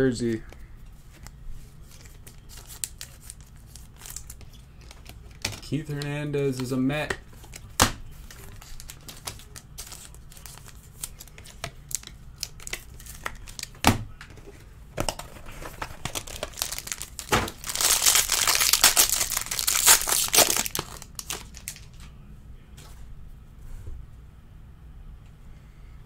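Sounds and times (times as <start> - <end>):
cards and plastic handled: 0.2 - 22.2
plastic wrap crinkling and tearing: 1.8 - 5.6, 7.4 - 13.8, 15.6 - 22.0.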